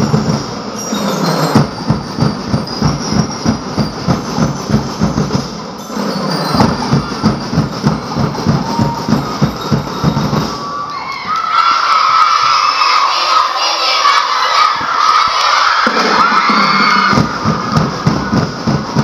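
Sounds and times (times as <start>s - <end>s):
drums playing fast beat: 0.0s - 10.8s, 15.8s - 19.0s.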